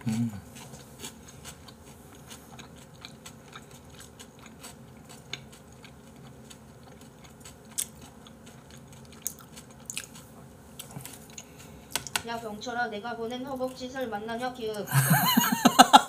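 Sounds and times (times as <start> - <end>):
person chewing wetly: 0.0 - 12.1.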